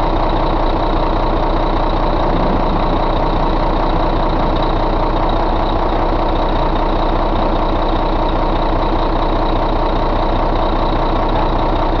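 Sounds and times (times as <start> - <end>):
diesel engine idling: 0.0 - 12.0
high whine: 1.7 - 7.0.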